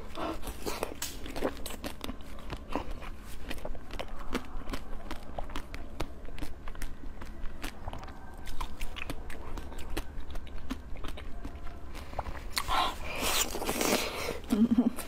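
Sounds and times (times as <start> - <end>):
person chewing with wet clicks: 0.0 - 15.0.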